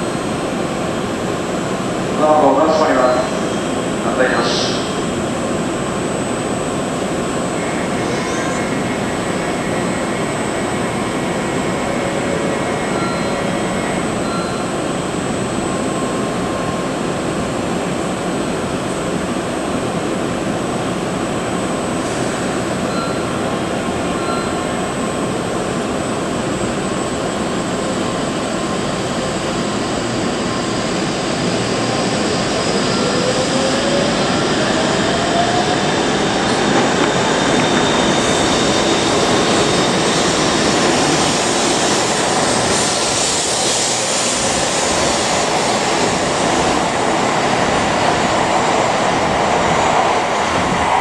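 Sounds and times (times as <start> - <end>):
train electric whine rising: 0.0 - 19.1, 24.0 - 51.0
faint beeps: 12.9 - 13.6, 14.2 - 14.7, 22.9 - 23.4, 24.2 - 24.7.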